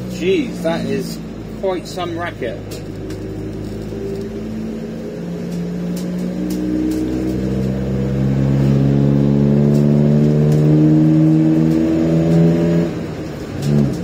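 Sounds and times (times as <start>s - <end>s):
man talking: 0.0s - 2.8s
diesel van engine droning: 0.0s - 14.0s.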